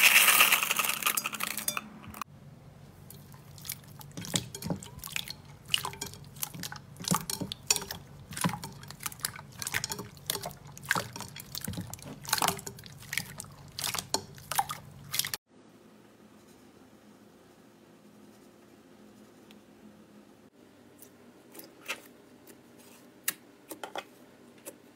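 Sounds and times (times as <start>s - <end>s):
slime squelching: 3.0s - 15.4s.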